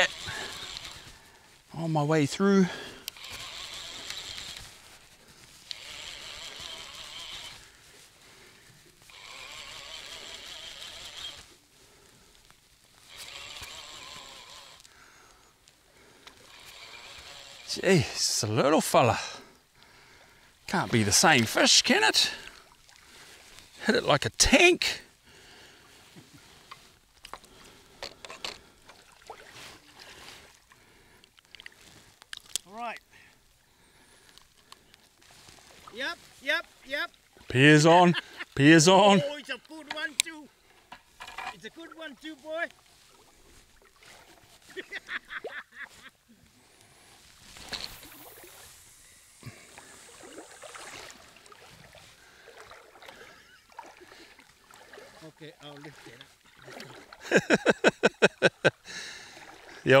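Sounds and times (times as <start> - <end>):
water lapping at shoreline: 0.0 - 60.0
faint wash of water: 28.9 - 30.7, 49.6 - 57.3.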